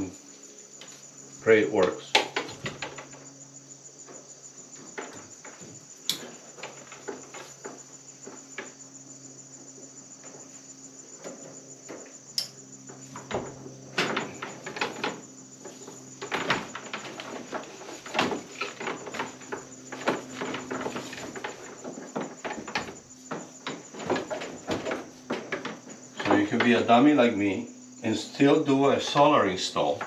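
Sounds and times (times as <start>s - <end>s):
crickets chirping: 0.0s - 30.0s.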